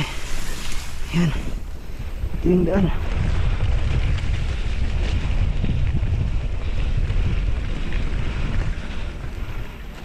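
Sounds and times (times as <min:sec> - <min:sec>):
wind rumbling on microphone: 0:00.0 - 0:10.0
bike rolling over dirt track: 0:02.9 - 0:10.0.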